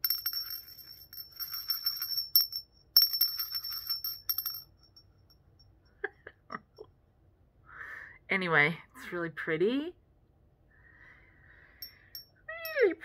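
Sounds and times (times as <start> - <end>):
porcelain hand bell ringing: 0.0 - 5.1, 11.8 - 12.9.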